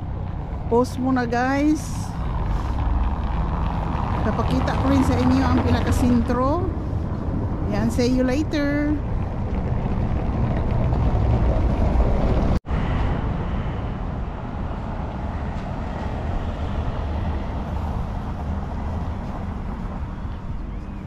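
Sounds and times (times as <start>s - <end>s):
bus engine rumble: 0.0s - 21.0s
traffic noise: 0.0s - 21.0s
car driving over cobbles: 2.3s - 6.0s, 9.0s - 12.6s.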